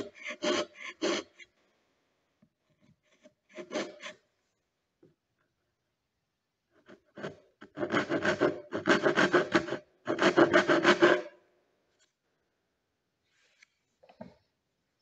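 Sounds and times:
steel blade scraping wood: 0:00.0 - 0:01.5, 0:03.0 - 0:04.2, 0:06.8 - 0:11.4.

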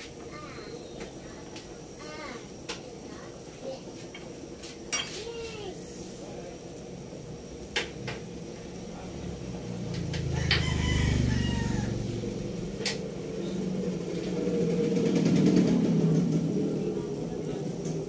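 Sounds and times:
low rumble: 0:08.9 - 0:18.0
rooster crowing: 0:10.2 - 0:12.7.

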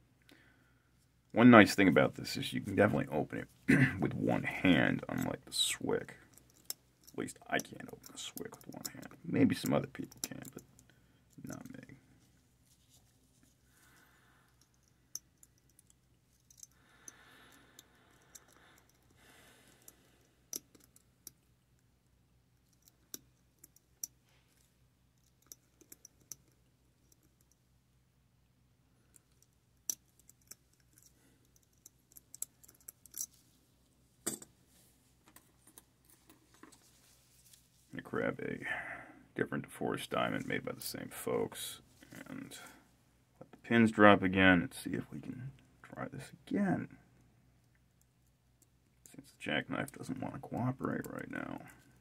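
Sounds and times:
soft rustle: 0:11.5 - 0:14.9, 0:32.7 - 0:38.4.

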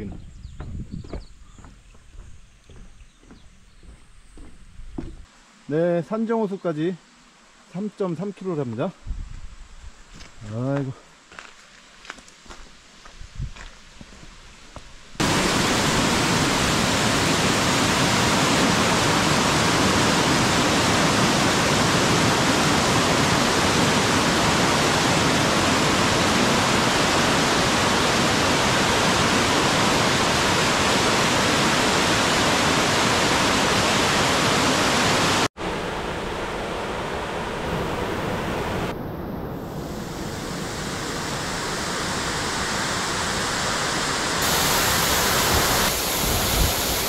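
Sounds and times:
mountain stream rushing: 0:15.2 - 0:38.9, 0:39.8 - 0:47.0.

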